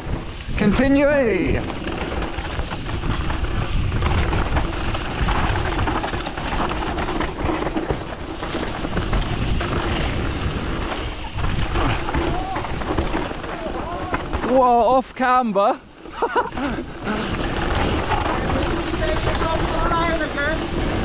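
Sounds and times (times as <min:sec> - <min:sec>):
wind rushing over microphone: 0:00.0 - 0:15.1, 0:15.8 - 0:21.0
bike rattling and knocking: 0:00.0 - 0:21.0
tyres on loose dirt: 0:00.0 - 0:21.0.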